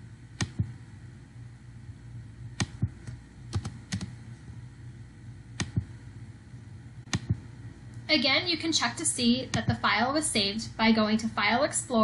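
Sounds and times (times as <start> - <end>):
low steady hum: 0.0 - 12.0
mouse and keyboard clicks: 2.6 - 4.1, 7.1 - 7.4.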